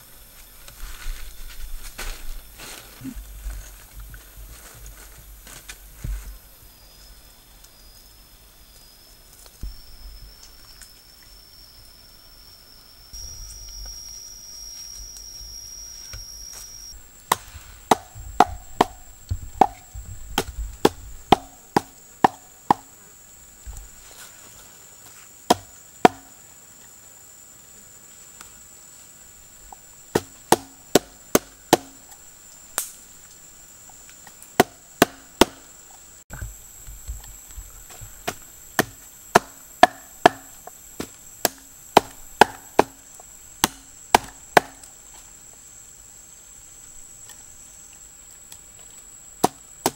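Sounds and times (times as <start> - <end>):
cleaver chopping on wooden block: 17.3 - 19.0, 19.6 - 22.9, 25.5 - 26.3, 30.2 - 32.0, 34.6 - 35.6, 38.3 - 43.0, 43.6 - 44.8, 49.4 - 49.9.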